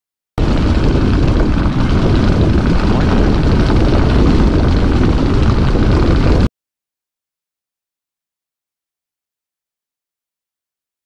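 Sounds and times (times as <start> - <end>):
car driving rumble: 0.4 - 6.5
wind noise: 0.4 - 6.5.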